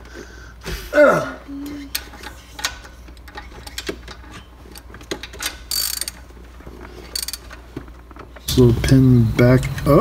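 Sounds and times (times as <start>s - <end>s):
ratchet wrench clicking: 4.7s - 6.2s, 7.1s - 7.5s.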